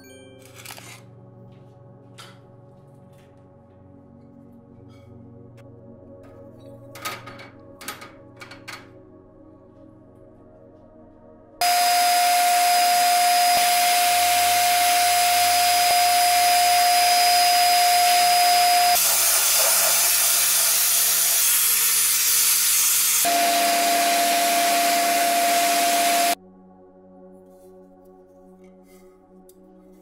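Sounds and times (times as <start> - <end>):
sandblaster hissing: 11.6 - 26.4
steady whine: 11.6 - 26.4.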